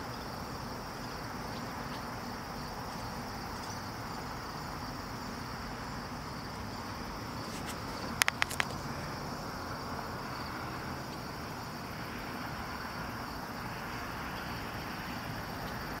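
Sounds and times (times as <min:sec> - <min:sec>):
background hiss: 0:00.0 - 0:16.0
insect chorus: 0:00.0 - 0:16.0
sharp clicks: 0:07.6 - 0:08.8.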